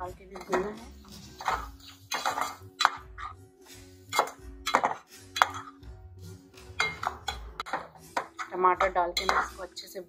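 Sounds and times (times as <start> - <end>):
soft background music: 0.0 - 10.0
metal spoon scraping a pot: 0.2 - 3.4, 4.0 - 5.9, 6.7 - 9.9.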